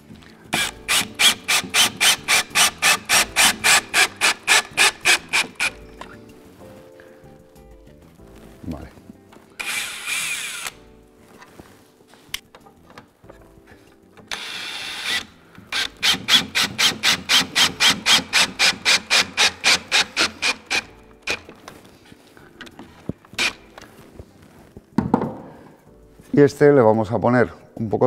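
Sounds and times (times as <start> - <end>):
drill motor running: 0.5 - 5.8, 9.6 - 10.8, 14.3 - 21.5
fast regular clicking of drill: 0.6 - 5.8, 9.6 - 10.8, 14.3 - 21.6.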